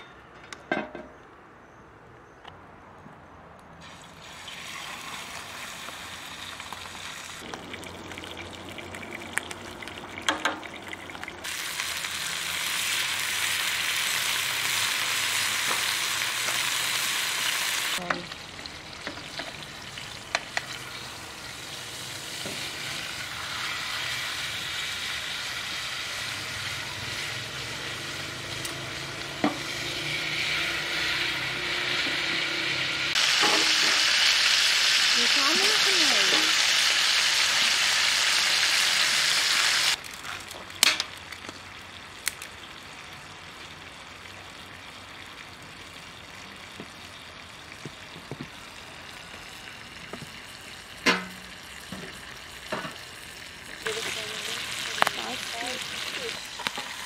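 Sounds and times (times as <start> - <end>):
fish sizzling in a grill pan: 3.8 - 57.0
sharp knocks against pan: 51.1 - 51.4.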